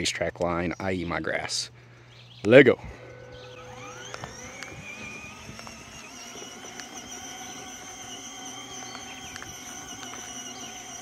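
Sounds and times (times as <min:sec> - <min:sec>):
electric toy motors whining: 0:02.8 - 0:11.0.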